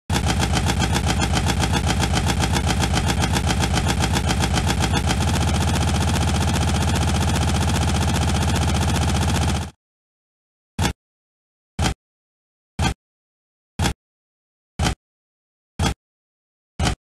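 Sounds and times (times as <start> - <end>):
engine idling: 0.1 - 9.7.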